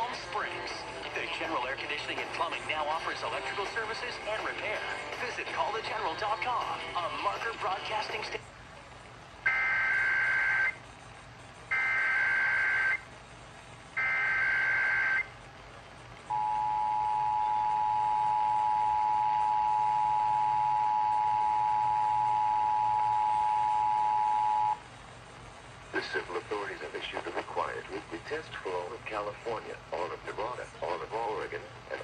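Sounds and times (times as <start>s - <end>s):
warbling data bursts: 9.4s - 10.8s, 11.7s - 13.1s
two-tone attention signal: 9.5s - 10.8s, 11.7s - 13.0s, 14.0s - 15.3s, 16.3s - 24.8s.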